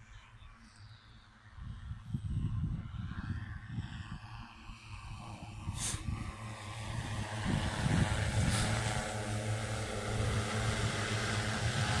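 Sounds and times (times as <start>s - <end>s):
drone propellers humming: 3.3s - 12.0s.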